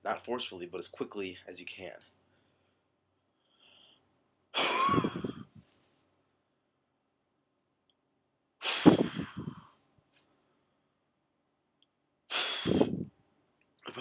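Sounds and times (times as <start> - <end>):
man exhaling: 4.6 - 5.6, 8.6 - 9.8, 12.3 - 13.0.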